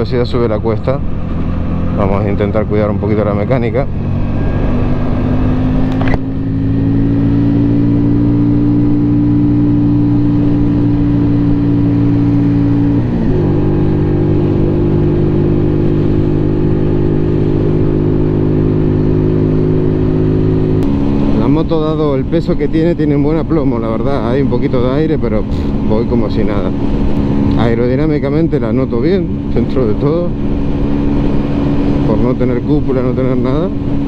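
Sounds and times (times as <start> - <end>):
motorcycle engine pulling uphill: 0.6 - 34.0.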